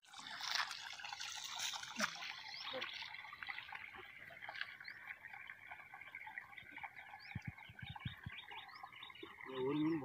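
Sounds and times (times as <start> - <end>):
small birds chirping: 2.0 - 10.0.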